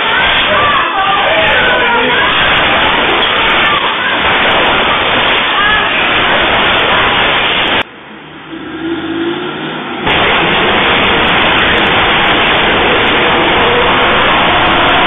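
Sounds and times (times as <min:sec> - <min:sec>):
loud steady rushing noise: 0:00.0 - 0:15.0
car engine revving: 0:07.7 - 0:15.0.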